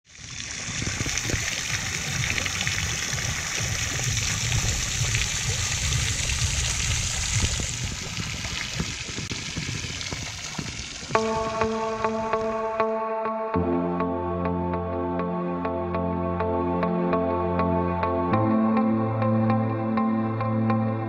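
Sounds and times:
fountain water splashing: 0.1 - 12.8
low rumble: 0.3 - 12.7.

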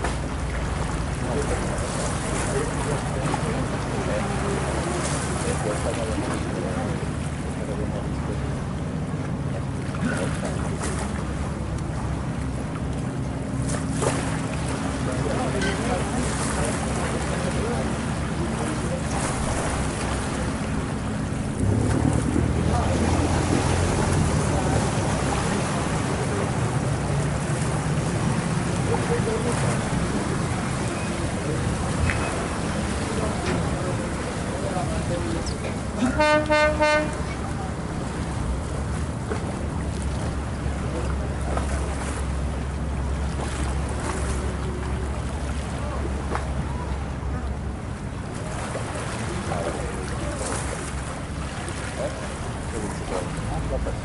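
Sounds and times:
boat engine droning: 0.0 - 54.0
water rushing along hull: 0.0 - 54.0
wind buffeting microphone: 21.0 - 28.7.

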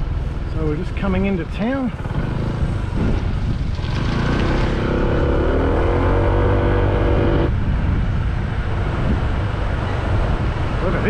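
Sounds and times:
wind rumbling on microphone: 0.0 - 11.0
motor scooter engine: 1.9 - 7.5.

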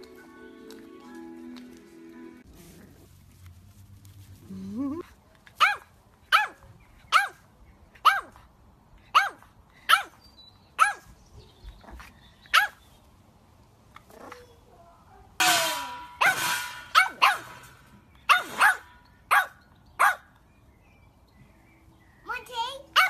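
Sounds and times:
puppy barking in high yaps: 5.6 - 7.4, 8.0 - 8.4, 9.1 - 10.2, 10.8 - 11.1, 12.5 - 12.8, 16.2 - 17.7, 18.3 - 20.3.

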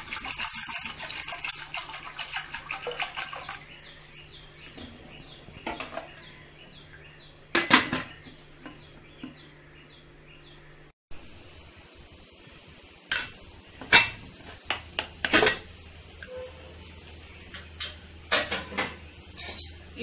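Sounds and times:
water splashing into metal pot: 0.0 - 3.8
metal lid clanking: 7.5 - 8.2, 15.2 - 16.5, 17.6 - 19.8.

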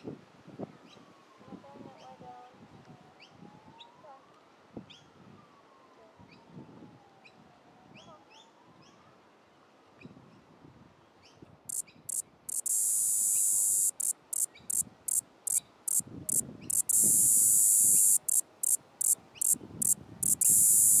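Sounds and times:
cicada buzzing: 11.7 - 21.0.

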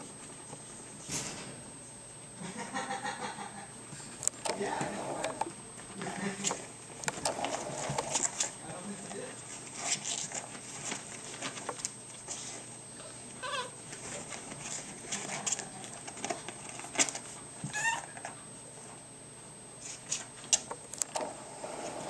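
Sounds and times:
puppy scratching in litter: 6.0 - 12.8, 13.4 - 18.4
puppies whimpering: 17.7 - 18.2.

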